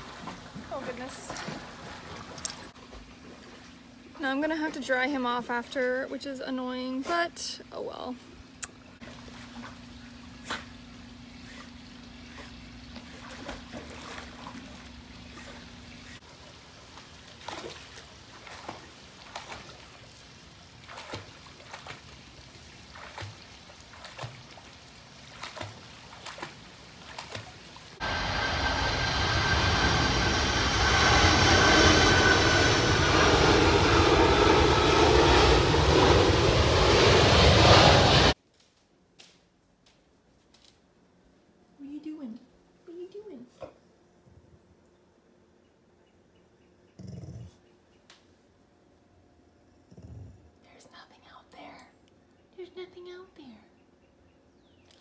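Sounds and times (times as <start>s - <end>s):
water splashing and dripping: 8.7s - 28.0s
engine noise with high whine: 28.0s - 38.4s.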